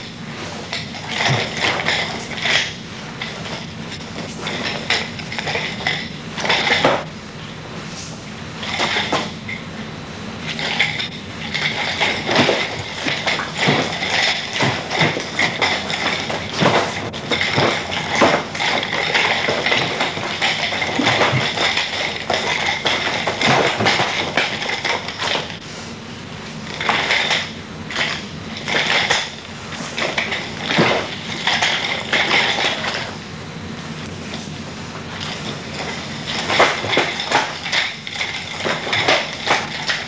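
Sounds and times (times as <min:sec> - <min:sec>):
nunchaku clacking: 0:10.5 - 0:25.6, 0:26.7 - 0:33.2, 0:35.2 - 0:40.0.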